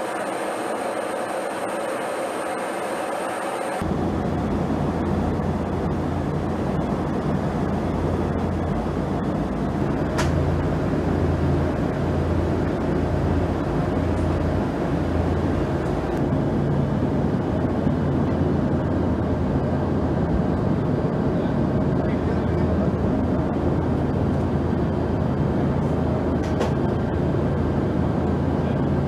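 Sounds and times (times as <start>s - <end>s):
aircraft cabin engine drone: 0.0s - 29.0s.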